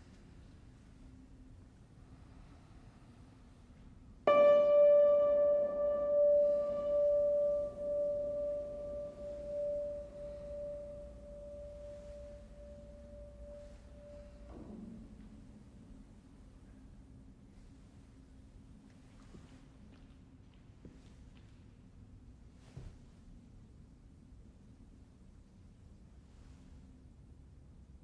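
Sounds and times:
grand piano note ringing: 4.2s - 15.2s.

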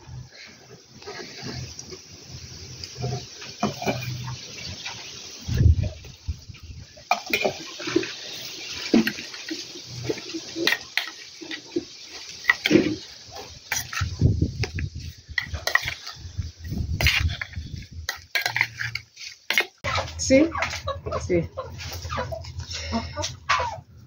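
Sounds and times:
spoon stirring wet mix in bowl: 8.8s - 20.8s.

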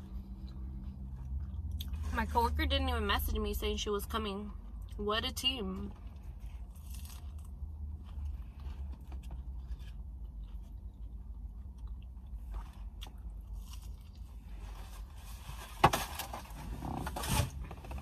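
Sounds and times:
crunchy food chewing: 6.1s - 15.1s.

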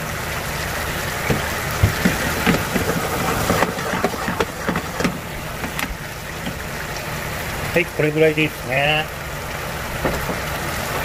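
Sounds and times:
sauce bubbling in a pan: 0.0s - 7.9s
metal ladle stirring: 1.3s - 6.7s.

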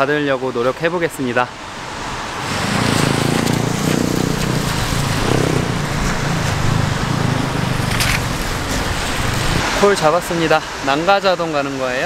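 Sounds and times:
tyre hissing on wet road: 2.1s - 12.0s
wind on microphone: 2.4s - 9.9s.

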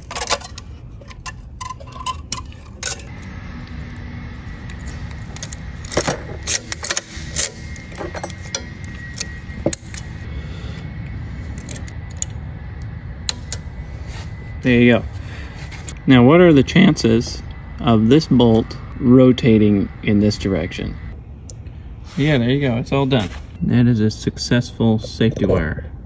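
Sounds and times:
metallic clicks and scrapes of wire: 0.0s - 3.2s, 4.7s - 10.2s
steady low rumble: 0.0s - 26.0s.

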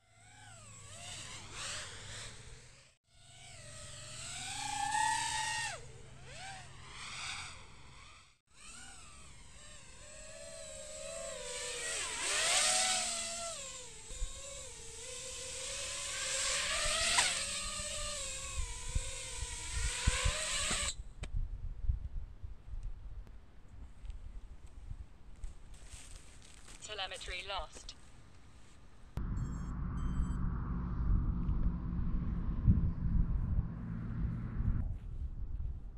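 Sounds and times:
drone motors whining: 0.0s - 21.0s, 29.2s - 35.0s
low thumps: 29.2s - 35.9s.

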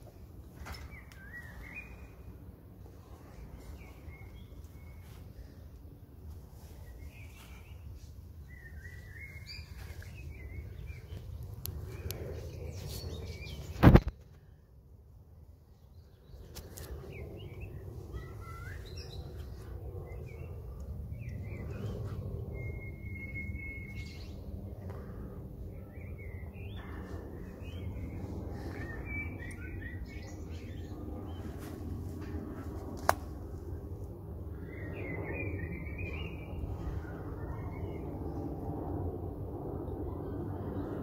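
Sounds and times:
small birds chirping: 15.8s - 32.4s
low rumble: 16.3s - 41.0s.

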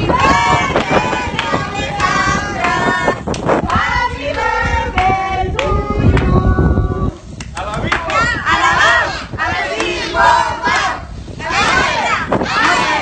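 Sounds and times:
group singing loudly: 0.0s - 7.0s, 8.2s - 13.0s
hand claps: 7.4s - 8.2s.

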